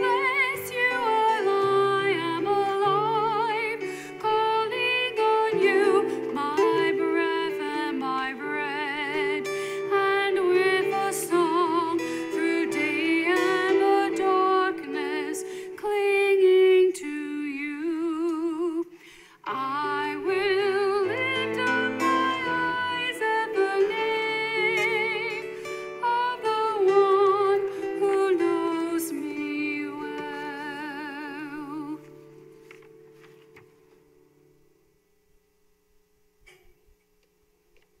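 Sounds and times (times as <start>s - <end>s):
person singing a hymn with vibrato: 0.0s - 32.2s
instrumental accompaniment: 19.4s - 34.7s.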